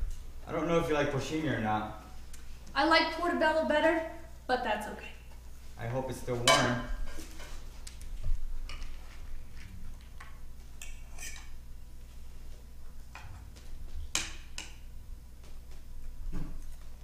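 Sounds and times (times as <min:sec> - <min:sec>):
fork clinking against plate: 0:10.8 - 0:11.6.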